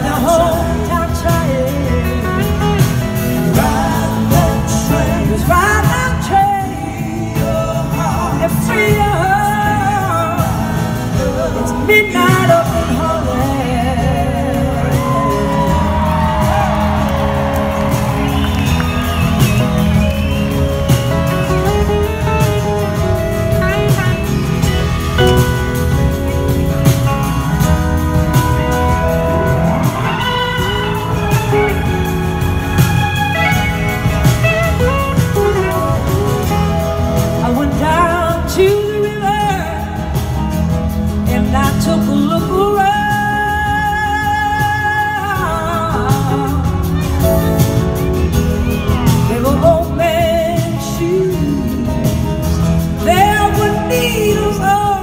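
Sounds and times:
woman singing: 0.0 - 17.0, 32.8 - 40.5, 41.1 - 47.2, 48.9 - 55.0
live band playing a ballad: 0.0 - 55.0.

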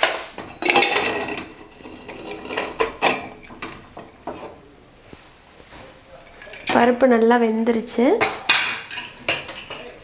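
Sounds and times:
pressure cooker clanks and scrapes: 0.0 - 4.5.

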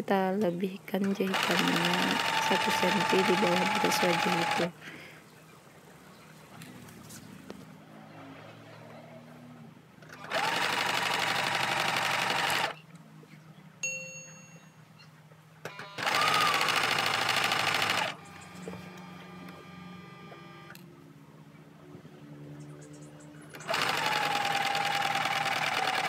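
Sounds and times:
sewing machine running: 1.0 - 4.7, 10.1 - 12.8, 15.8 - 20.7, 23.5 - 26.0
short ding: 13.8 - 14.8.

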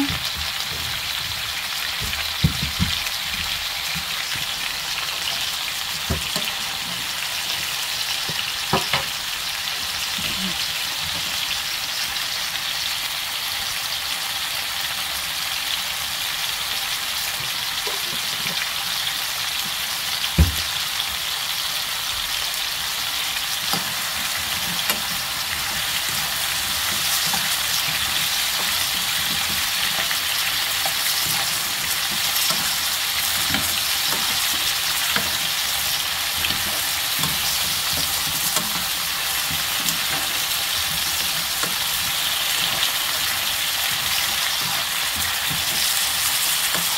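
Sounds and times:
squash sizzling in a frying pan: 0.0 - 46.9
metal spoon scraping a pan: 23.6 - 46.9.

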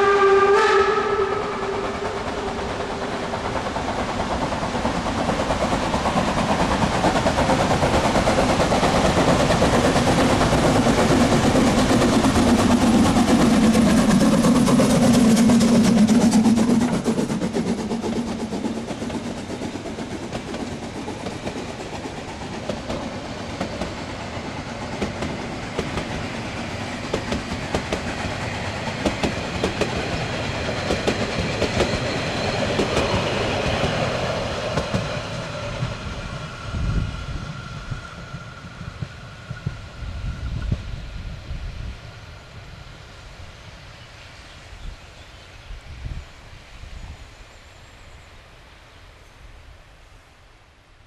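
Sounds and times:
steam locomotive passing: 0.0 - 51.0
wheels clacking over rail joints: 1.8 - 36.2.

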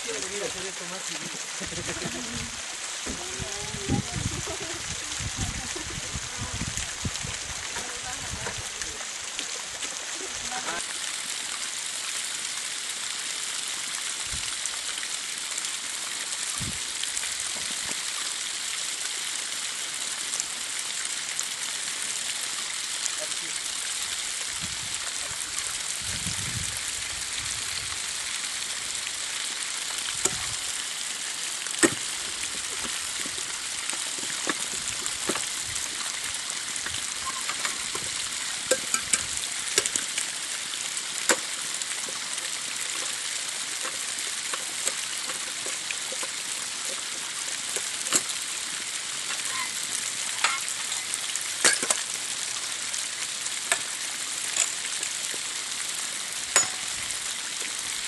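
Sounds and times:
bricks knocking on rocky ground: 31.8 - 35.5.

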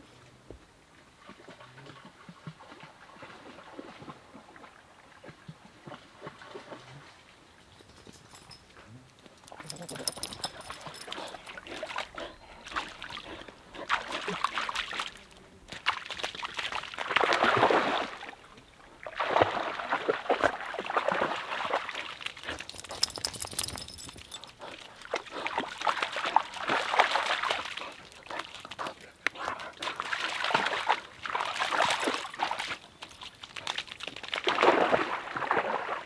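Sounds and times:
dog splashing in water: 9.5 - 18.3, 19.1 - 36.0.

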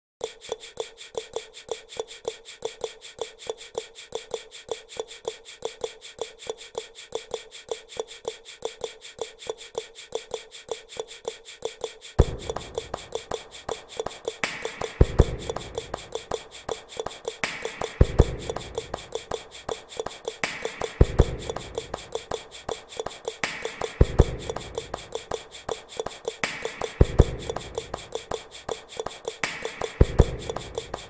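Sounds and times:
fast ticking clicks: 0.2 - 31.0.

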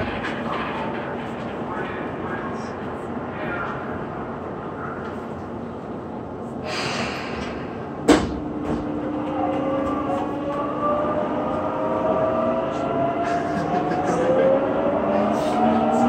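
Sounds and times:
train running noise: 0.0 - 16.0
short air hiss: 6.6 - 7.4.

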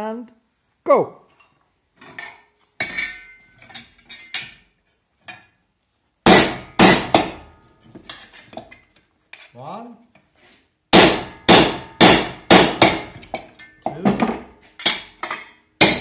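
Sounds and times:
hammer striking steel punch: 6.3 - 7.5, 10.9 - 13.4, 14.3 - 16.0.

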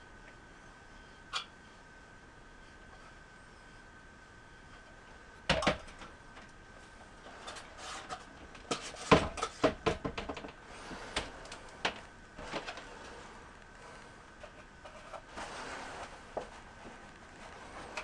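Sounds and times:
plastic drain parts knocking: 9.1 - 10.6.

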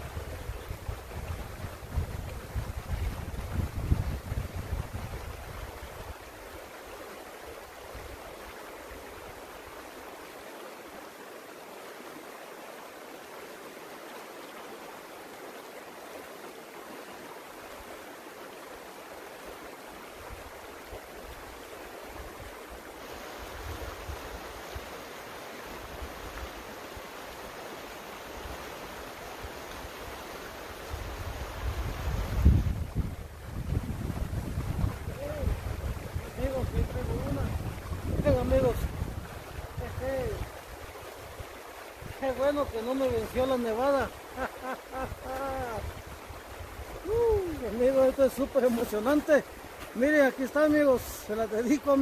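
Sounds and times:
wind rumble on microphone: 0.0 - 6.6, 30.8 - 44.2, 45.0 - 48.0
creek water rushing: 0.0 - 52.0.

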